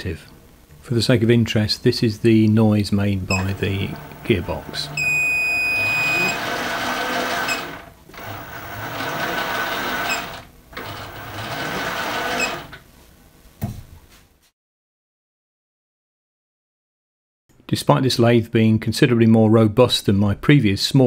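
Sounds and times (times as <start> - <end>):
steady high tone: 3.4 - 8.4
lathe gearbox whirring: 3.4 - 12.8.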